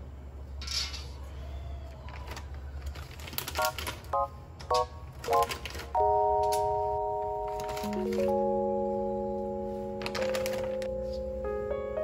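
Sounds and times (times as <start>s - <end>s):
held chord: 6.0s - 12.0s.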